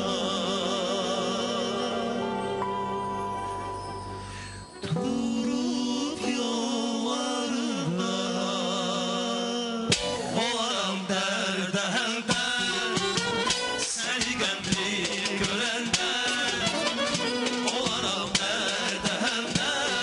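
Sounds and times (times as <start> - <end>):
folk band playing ornamented melody: 0.0 - 6.1, 12.2 - 20.0.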